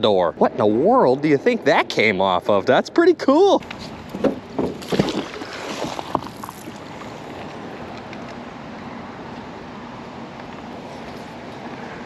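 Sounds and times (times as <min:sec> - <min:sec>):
moving water: 0:00.0 - 0:12.0.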